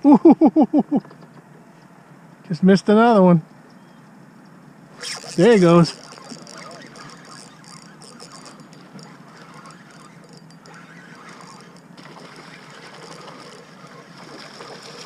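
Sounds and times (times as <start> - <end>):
wind and water hiss: 4.2 - 15.0
fish splashing at water surface: 5.1 - 15.0.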